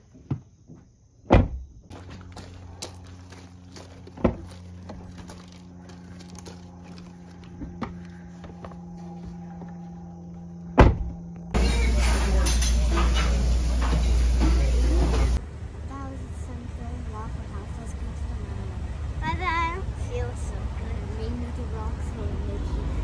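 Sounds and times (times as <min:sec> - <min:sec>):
steady low hum: 0:00.0 - 0:23.0
car doors thudding shut: 0:01.2 - 0:01.7, 0:10.8 - 0:11.2.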